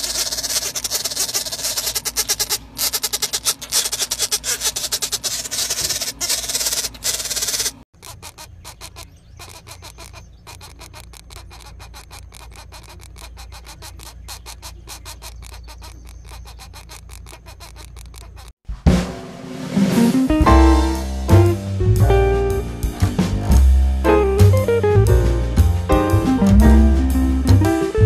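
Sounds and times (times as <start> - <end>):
woodpecker nestlings chattering: 0.0 - 18.6.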